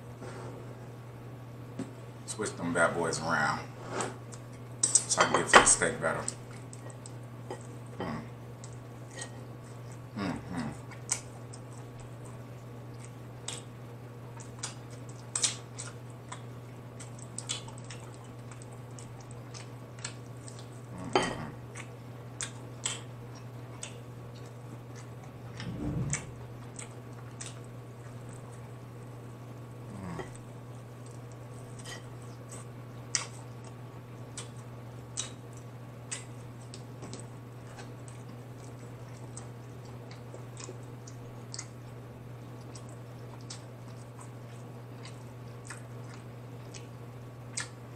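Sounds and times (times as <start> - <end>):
steady low hum: 0.0 - 47.9
wet mouth smacks and chewing: 14.4 - 20.7, 32.2 - 41.8, 42.6 - 46.9, 47.5 - 47.8.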